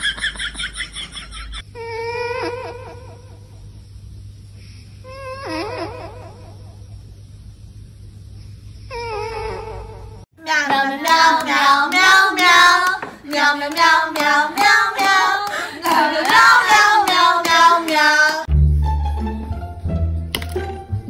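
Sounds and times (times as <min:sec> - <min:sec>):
child-like voice singing: 0:10.4 - 0:18.5.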